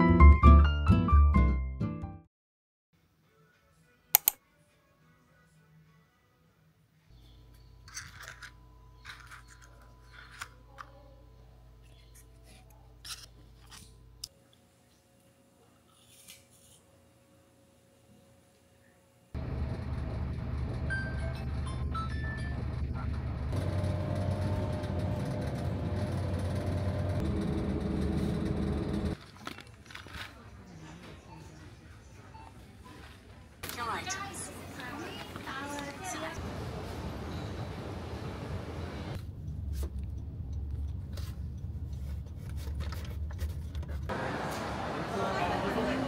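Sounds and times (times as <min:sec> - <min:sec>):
packaging clicks and scrapes: 0:07.9 - 0:10.9, 0:29.2 - 0:30.4
bus engine rumble: 0:19.4 - 0:29.2, 0:34.1 - 0:46.0
low steady rumble: 0:19.4 - 0:29.2
road noise: 0:19.4 - 0:29.8, 0:34.3 - 0:46.0.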